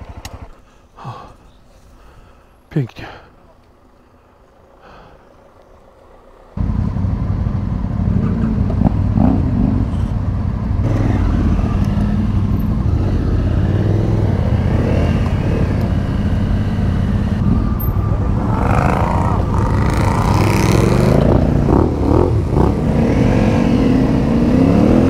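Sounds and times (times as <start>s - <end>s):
road noise: 0.0s - 25.0s
vehicle passing: 3.8s - 25.0s
vehicle engine running loudly: 5.6s - 25.0s.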